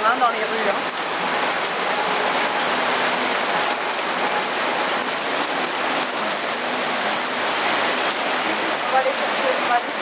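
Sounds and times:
bus driving through floodwater: 0.0s - 10.0s
heavy rain pouring: 0.0s - 10.0s.

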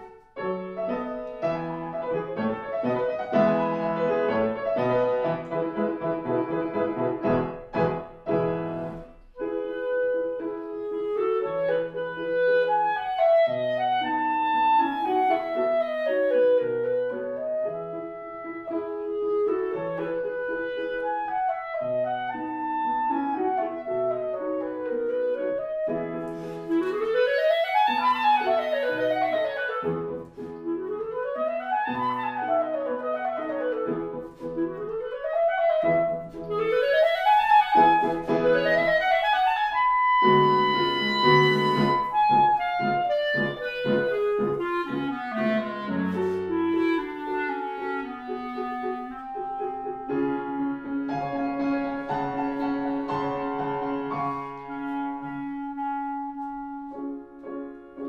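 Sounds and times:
clarinet playing runs: 0.0s - 58.0s
piano accompaniment: 0.0s - 58.0s.

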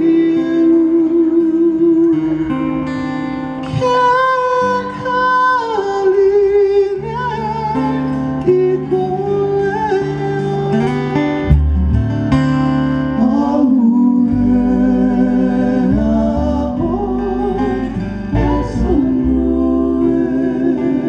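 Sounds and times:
bass guitar: 0.0s - 21.0s
strummed acoustic guitars: 0.0s - 21.0s
men singing long notes: 13.1s - 21.0s.

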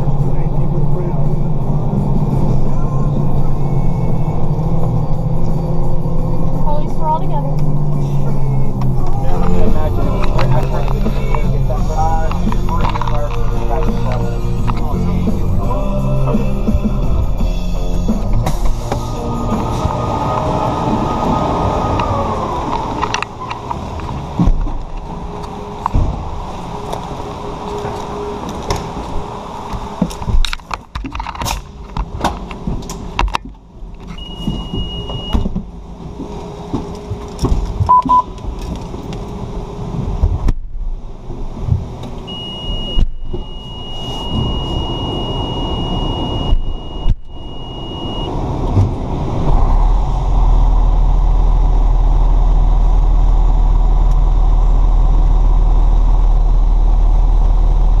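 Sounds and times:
diesel engine idling: 0.0s - 30.3s, 40.9s - 58.0s
gear and doors clicking and knocking: 22.0s - 26.3s, 27.6s - 39.4s
high steady beep: 34.2s - 35.4s, 37.9s - 38.3s, 42.3s - 48.3s.

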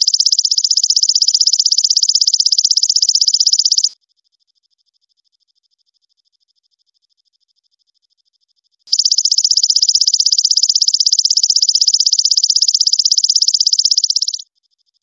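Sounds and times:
katydid loud pulsing trill: 0.0s - 3.9s, 8.9s - 14.4s
faint thin pulsing insect call: 0.0s - 15.0s.

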